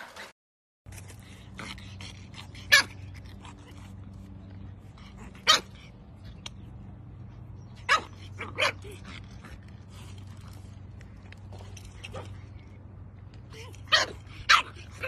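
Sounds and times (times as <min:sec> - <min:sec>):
puppy barking high: 0:05.4 - 0:05.8, 0:07.8 - 0:09.0, 0:13.8 - 0:15.0.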